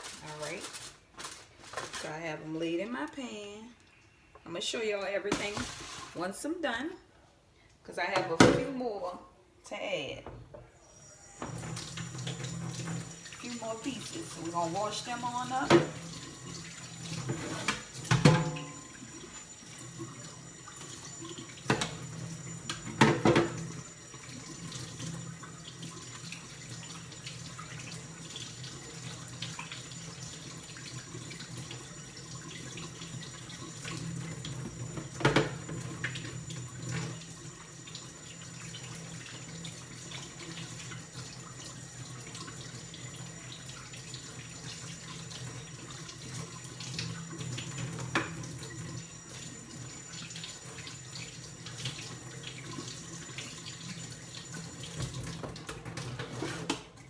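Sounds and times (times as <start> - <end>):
tap running into sink: 21.6 - 23.7, 34.4 - 36.3.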